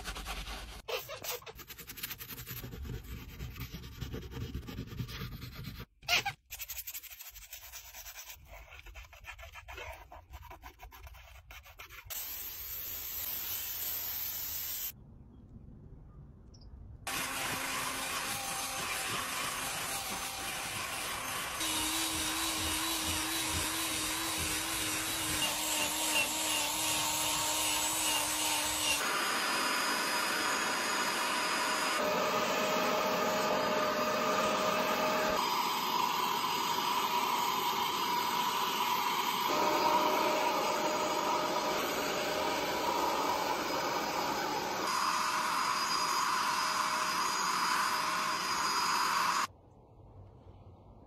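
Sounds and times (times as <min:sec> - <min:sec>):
wet vacuum motor whine: 0:29.0 - 0:49.5.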